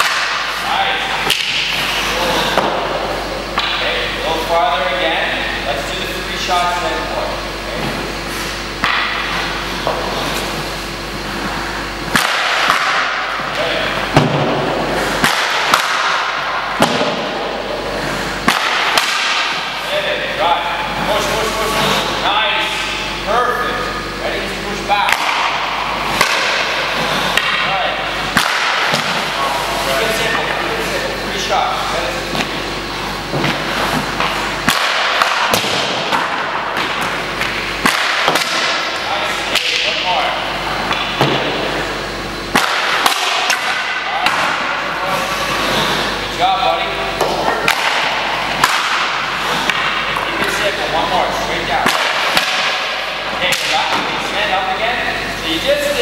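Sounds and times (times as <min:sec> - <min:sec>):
hockey stick hitting puck: 0:00.0 - 0:00.6, 0:01.2 - 0:03.0, 0:08.8 - 0:10.4, 0:12.1 - 0:17.6, 0:18.4 - 0:19.7, 0:25.0 - 0:27.7, 0:28.3 - 0:29.3, 0:33.3 - 0:40.0, 0:40.9 - 0:41.7, 0:42.5 - 0:46.0, 0:47.2 - 0:50.8, 0:51.8 - 0:54.3
puck hitting pads: 0:00.0 - 0:03.9, 0:08.8 - 0:10.6, 0:12.0 - 0:22.1, 0:25.0 - 0:30.9, 0:32.2 - 0:41.9, 0:42.5 - 0:46.2, 0:47.0 - 0:54.5
skate blades scraping ice: 0:45.1 - 0:46.1.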